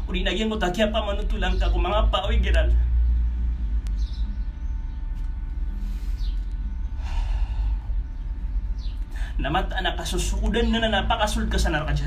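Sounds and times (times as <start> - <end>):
steady low rumble: 0.0 - 12.0
man breathing: 5.7 - 8.2, 9.0 - 9.4.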